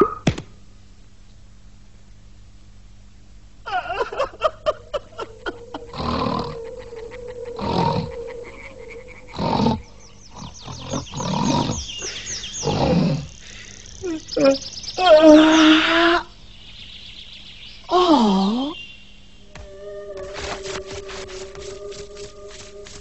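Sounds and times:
chirping whistles: 0:05.4 - 0:23.0
rough roar-like cries: 0:05.7 - 0:11.9.

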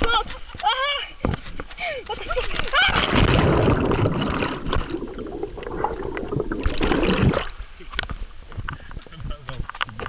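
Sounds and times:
muffled underwater churning: 0:02.8 - 0:08.9.

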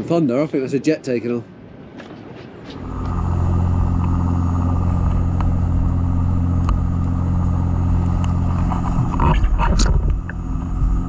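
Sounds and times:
boat engine droning: 0:02.7 - 0:11.0.

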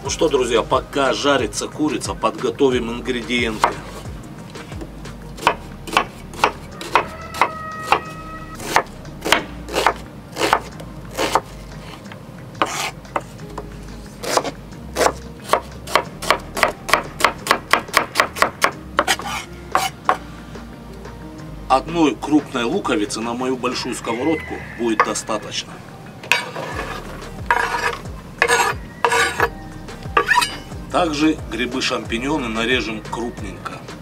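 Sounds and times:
knife chopping on wooden board: 0:03.5 - 0:04.0, 0:04.7 - 0:11.5, 0:12.6 - 0:20.2, 0:26.3 - 0:29.5.

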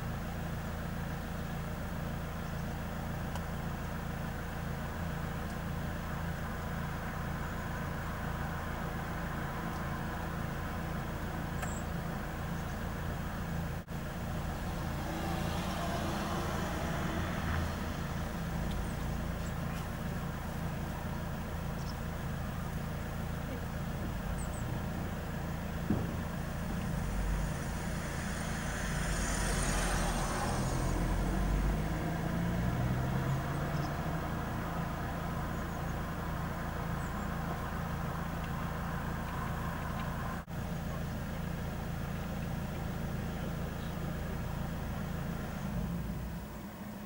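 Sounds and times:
vehicle engines idling: 0:00.0 - 0:47.0.

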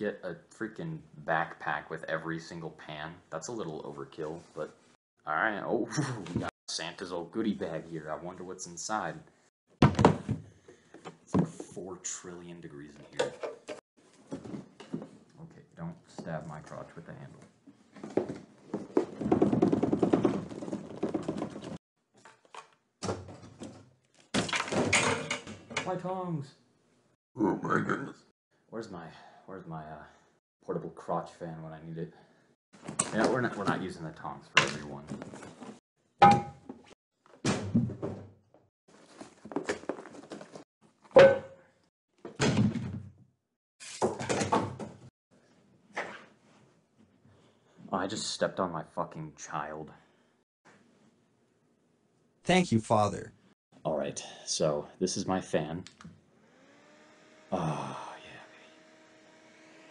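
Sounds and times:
cardboard and fabric rustling: 0:17.8 - 0:21.8, 0:38.9 - 0:40.6.

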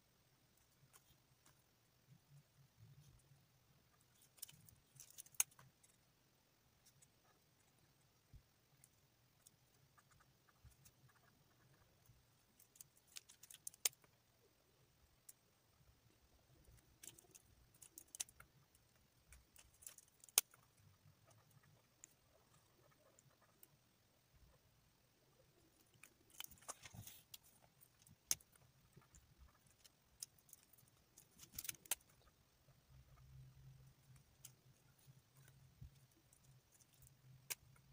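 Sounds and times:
faint low hum: 0:00.0 - 0:37.9
plastic markers ticking: 0:08.7 - 0:14.2, 0:16.5 - 0:23.8, 0:25.3 - 0:37.9.

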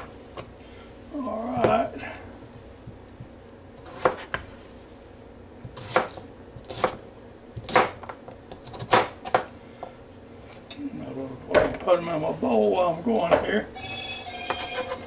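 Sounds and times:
knife chopping on cutting board: 0:03.8 - 0:04.5, 0:05.6 - 0:07.0, 0:07.6 - 0:09.5.

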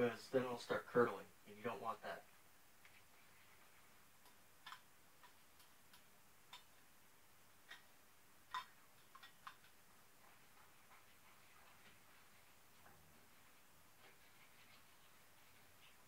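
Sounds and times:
utensil clicking against skillet: 0:08.5 - 0:09.8.

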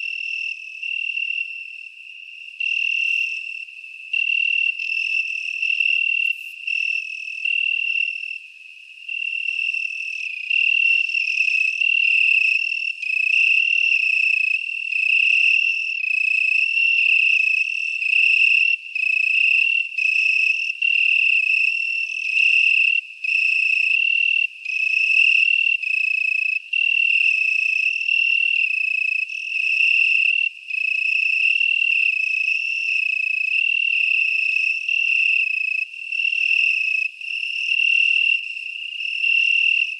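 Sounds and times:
insect trilling: 0:02.6 - 0:08.1.

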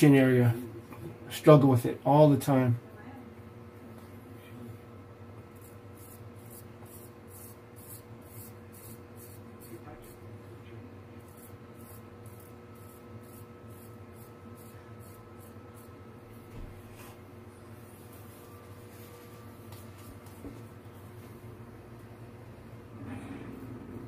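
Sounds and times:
straight razor scraping stubble: 0:05.5 - 0:10.2, 0:11.2 - 0:16.0.

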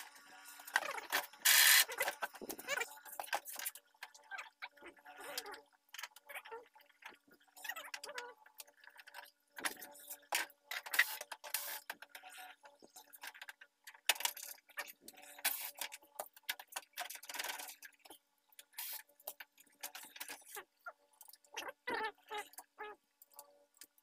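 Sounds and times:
plastic clicks and rattles: 0:07.0 - 0:21.8.

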